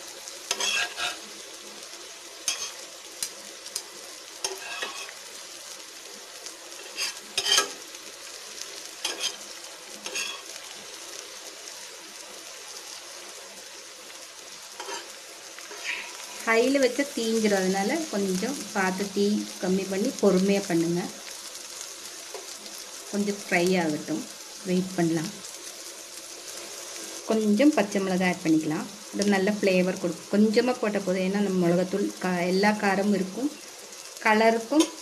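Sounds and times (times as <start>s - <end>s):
eggs sizzling in oil: 0.0s - 35.0s
spatula scraping griddle: 0.5s - 1.2s, 2.4s - 2.8s, 4.4s - 5.2s, 6.7s - 7.9s, 9.0s - 10.6s, 14.8s - 16.5s.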